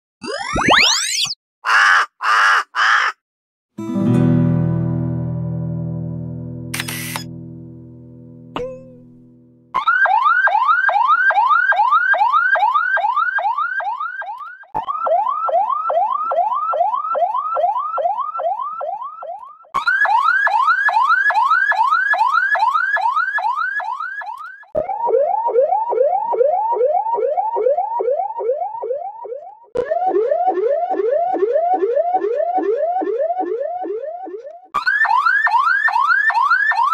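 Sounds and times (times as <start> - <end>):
ambulance siren yelping: 0.2 - 1.4, 9.8 - 36.9.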